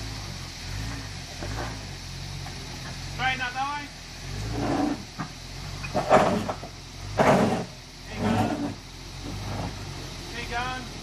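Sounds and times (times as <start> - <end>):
engine running low: 0.0 - 11.0
tyres scraping and knocking on rock: 4.7 - 9.8.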